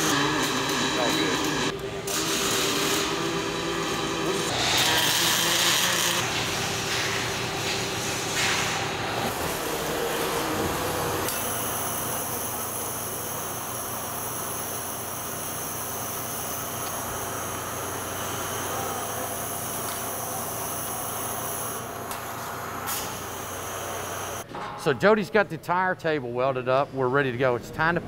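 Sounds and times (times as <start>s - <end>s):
metal-cutting saw humming: 0.0s - 6.4s, 9.3s - 22.1s, 23.0s - 24.4s.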